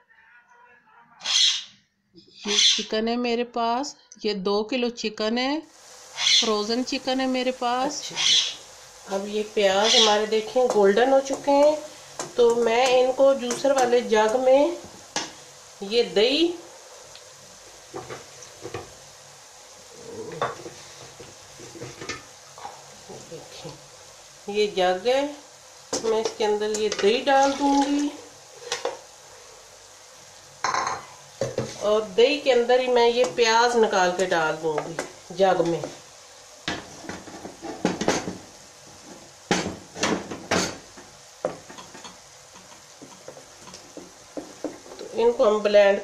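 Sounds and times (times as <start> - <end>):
onions sizzling in oil: 5.4 - 46.0
kitchenware knocks and clatters: 36.7 - 38.4, 39.5 - 40.8.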